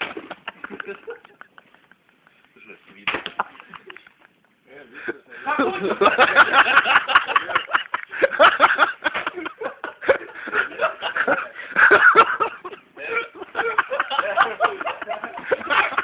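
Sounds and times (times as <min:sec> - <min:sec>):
people laughing: 0:00.0 - 0:16.0.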